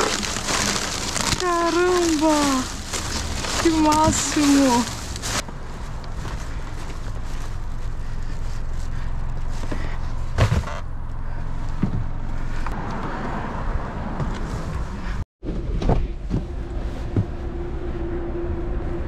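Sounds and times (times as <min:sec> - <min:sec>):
rustling handling noise: 0:00.0 - 0:10.7
steady low rumble: 0:00.0 - 0:12.8, 0:14.3 - 0:19.0.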